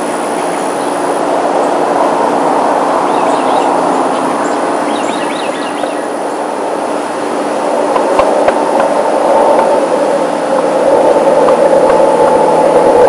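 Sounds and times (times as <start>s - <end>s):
aircraft engine passing overhead: 0.0s - 13.0s.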